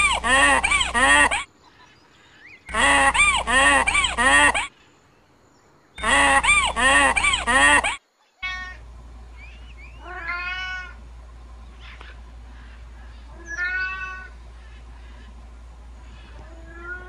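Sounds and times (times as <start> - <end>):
animal honking calls: 0.0 - 1.4, 2.7 - 4.7, 6.0 - 8.0.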